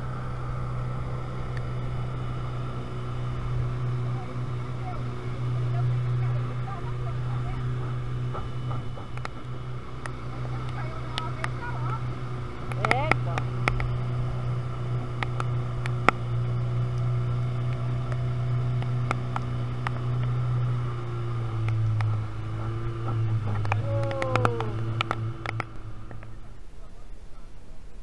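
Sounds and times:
outboard motor running: 0:00.0 - 0:27.7
sharp clicks: 0:12.6 - 0:14.0, 0:21.6 - 0:26.3.

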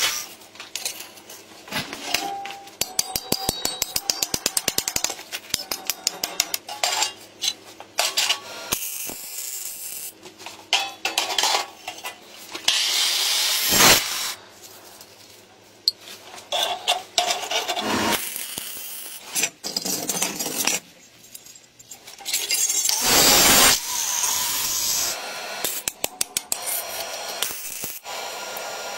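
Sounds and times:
hammer striking chisel on sheet metal: 0:02.2 - 0:06.7
cut-off disc cutting steel: 0:12.7 - 0:14.4, 0:17.4 - 0:19.2, 0:22.6 - 0:28.9.

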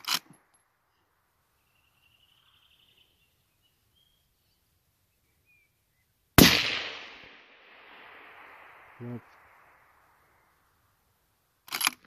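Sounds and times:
faint bird chirps: 0:00.8 - 0:06.3
rifle shot: 0:06.4 - 0:10.5.

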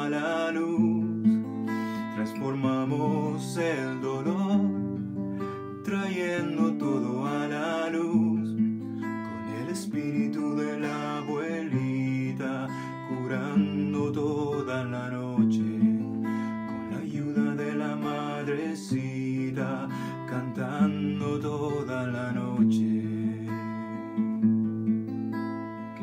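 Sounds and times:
man singing: 0:00.0 - 0:04.8, 0:05.8 - 0:08.7, 0:09.3 - 0:24.4
acoustic guitar strumming: 0:00.0 - 0:26.0.

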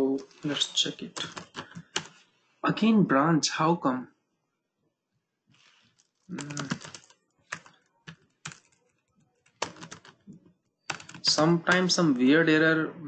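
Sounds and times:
typing on computer keyboard: 0:01.1 - 0:02.2, 0:06.0 - 0:12.2.

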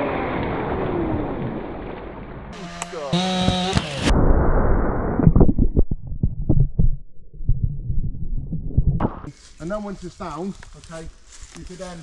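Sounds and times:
low rumble: 0:00.0 - 0:03.3, 0:04.0 - 0:09.3
chainsaw running: 0:02.5 - 0:04.1.

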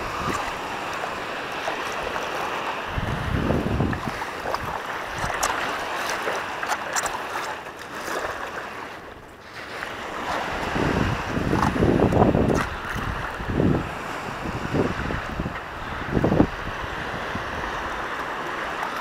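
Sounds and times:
wind buffeting microphone: 0:00.0 - 0:06.1, 0:09.6 - 0:19.0
paddle swishing through water: 0:00.0 - 0:19.0
water splashing and dripping: 0:03.8 - 0:08.5.

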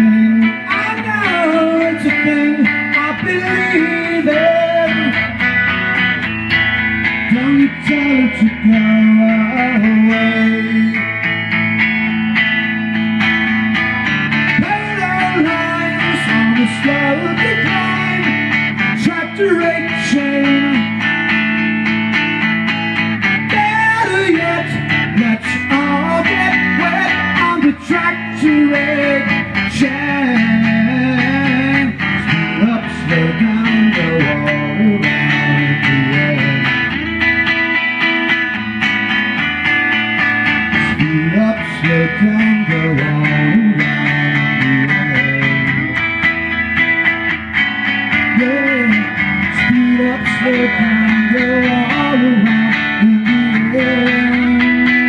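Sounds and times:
blues guitar with bending notes: 0:00.0 - 0:55.0.

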